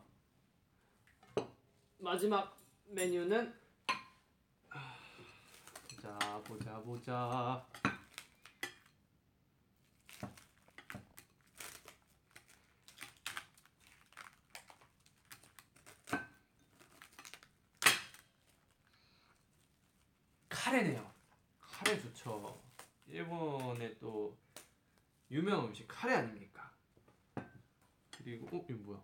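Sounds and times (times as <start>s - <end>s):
china dishes clinking: 2.6s - 3.3s, 5.8s - 6.7s.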